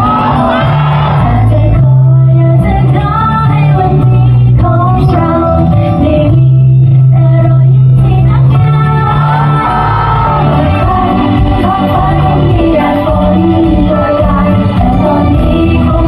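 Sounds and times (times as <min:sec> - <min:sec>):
audience shouting: 0:00.0 - 0:01.3, 0:09.1 - 0:10.8
amplified pop music with bass: 0:00.0 - 0:16.0
women singing pop: 0:00.0 - 0:16.0.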